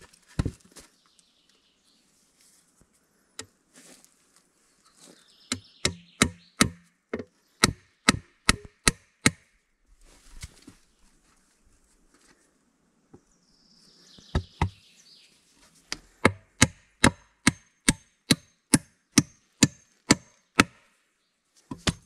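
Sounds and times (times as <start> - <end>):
wood being chopped: 0.3 - 0.7, 5.5 - 9.5, 15.9 - 20.9, 21.7 - 22.0.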